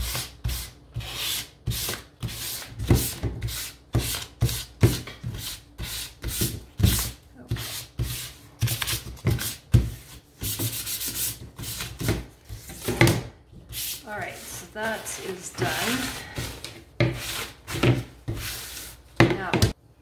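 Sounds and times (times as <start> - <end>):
sanding pad scraping wood: 13.8 - 19.0.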